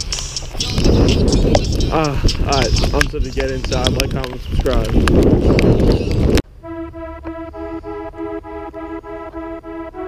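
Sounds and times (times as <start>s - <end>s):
rain drops tapping: 2.2s - 6.2s
background keyboard music: 6.5s - 10.0s.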